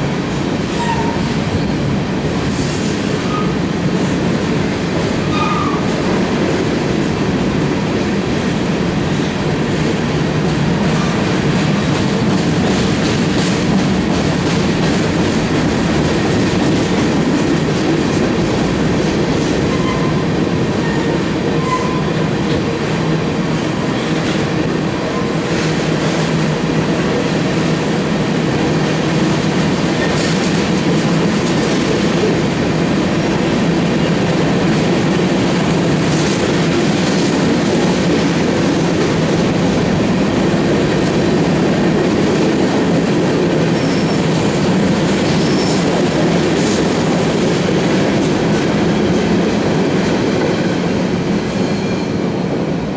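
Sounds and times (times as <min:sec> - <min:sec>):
steel wheels rumbling on rail: 0:00.0 - 0:52.9
faint wheel squeal: 0:50.7 - 0:52.6.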